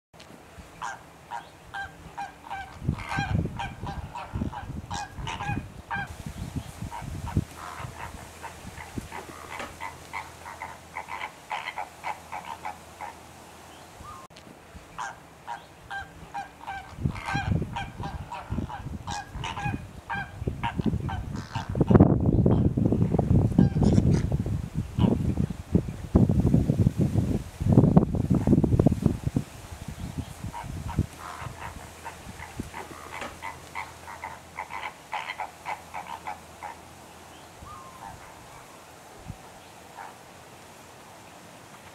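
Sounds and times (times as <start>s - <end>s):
flamingos honking: 0.7s - 14.3s, 14.9s - 22.7s, 23.6s - 24.3s, 25.0s - 25.2s, 30.2s - 40.2s.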